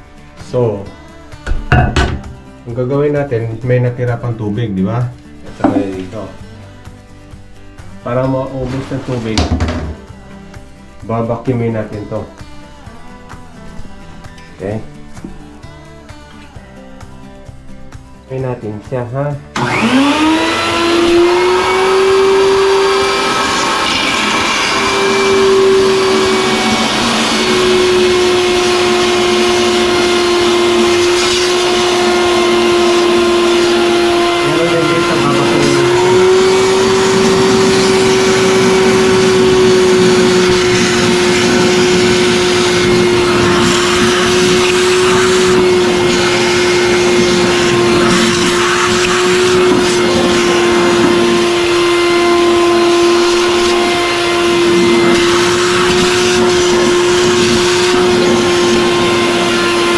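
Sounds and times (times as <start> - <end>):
hose sucking water: 8.1 - 10.0, 19.6 - 59.9
wet dry vacuum whining: 19.5 - 59.9.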